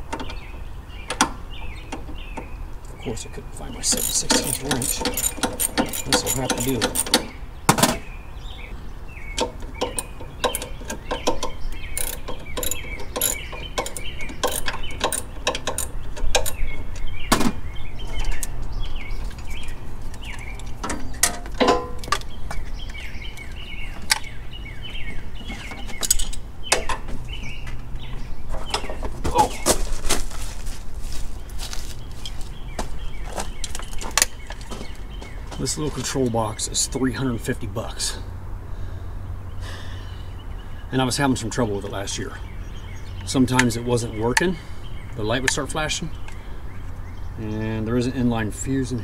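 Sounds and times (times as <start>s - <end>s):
birds chirping: 0.0s - 49.0s
hand wrench clicking: 3.9s - 7.3s, 9.4s - 16.6s
clicks and knocks of handling: 19.2s - 24.3s.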